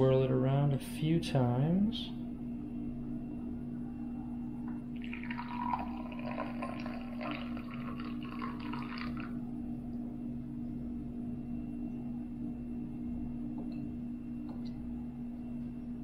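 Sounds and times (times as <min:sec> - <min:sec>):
steady low hum: 0:00.0 - 0:16.0
coffee pouring into cup: 0:04.7 - 0:09.4.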